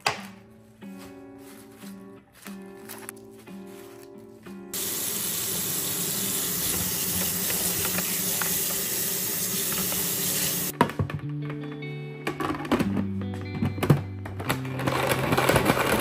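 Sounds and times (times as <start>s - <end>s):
kitchen tap running: 4.8s - 10.7s.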